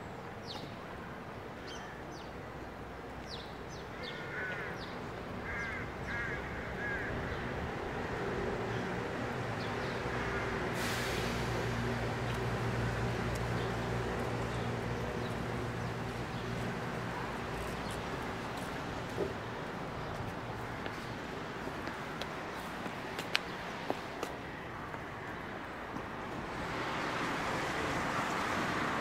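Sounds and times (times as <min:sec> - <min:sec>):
large vehicle engine hum: 0:07.8 - 0:20.6
air brake hiss: 0:10.7 - 0:12.0.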